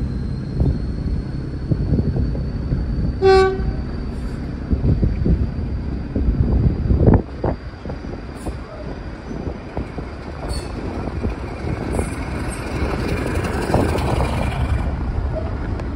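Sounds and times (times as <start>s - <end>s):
train low rumble: 0.0s - 15.9s
wheels clicking over rail joints: 8.4s - 15.9s.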